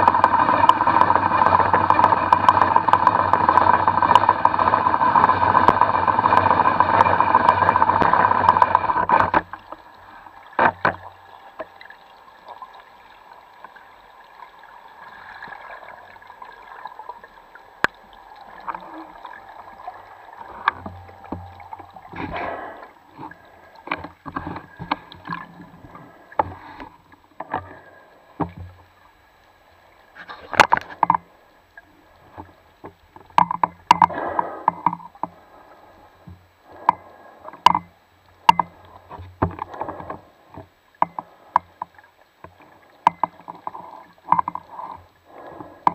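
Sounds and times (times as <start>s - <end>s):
knocks and clicks of gear: 0.0s - 9.8s, 23.2s - 28.8s, 30.5s - 31.3s, 32.3s - 35.4s, 36.2s - 45.9s
underwater mechanical drone: 0.0s - 45.9s
underwater water noise: 0.0s - 45.9s.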